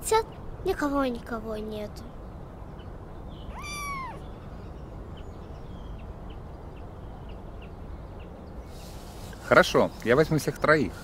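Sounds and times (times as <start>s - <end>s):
low background noise: 0.0s - 11.0s
kitten mewing: 3.5s - 4.2s.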